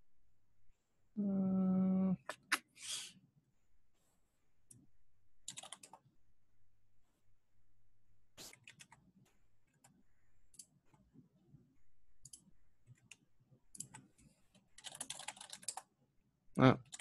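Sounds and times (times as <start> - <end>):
computer keyboard typing: 5.4 - 6.1, 8.5 - 10.9, 12.2 - 15.9, 16.8 - 17.0.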